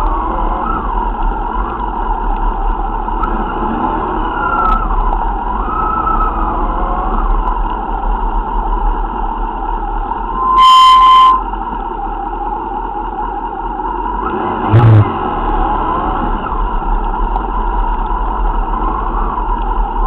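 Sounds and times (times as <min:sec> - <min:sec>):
horn sounding: 0:10.3 - 0:11.6.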